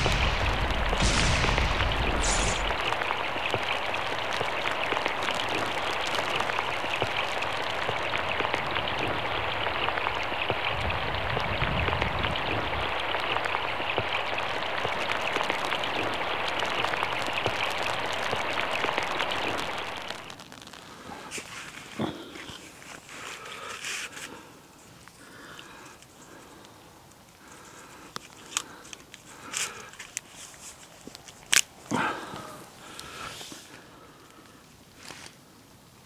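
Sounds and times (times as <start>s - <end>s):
rain pattering: 0.0s - 36.0s
short swish: 1.0s - 2.7s.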